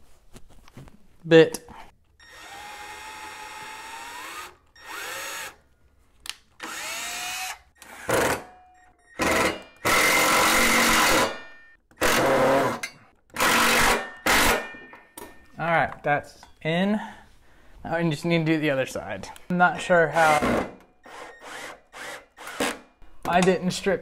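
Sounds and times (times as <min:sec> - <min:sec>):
cordless drill whining in bursts: 0:02.2 - 0:05.6, 0:06.6 - 0:08.3, 0:21.0 - 0:22.9.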